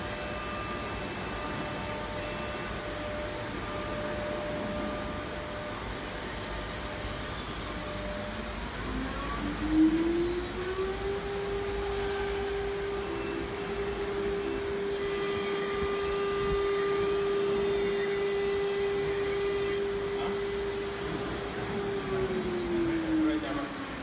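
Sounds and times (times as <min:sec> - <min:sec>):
spindle motor high-pitched whine: 0:00.0 - 0:24.0.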